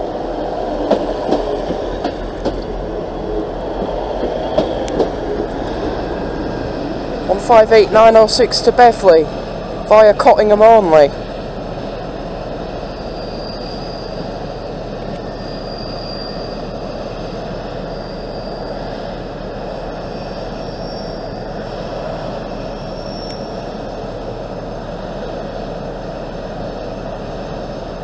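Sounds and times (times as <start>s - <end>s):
train engine and rail noise: 0.0s - 28.0s
high-pitched wheel squeals: 12.8s - 19.3s, 19.9s - 21.8s, 22.4s - 24.0s.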